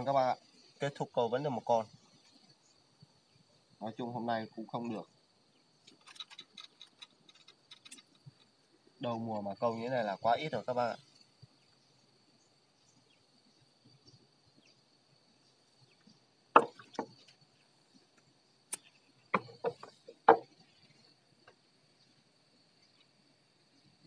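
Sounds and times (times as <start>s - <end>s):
high-pitched insect drone: 0.0s - 17.6s
sharp knocks and clacks: 19.3s - 20.5s.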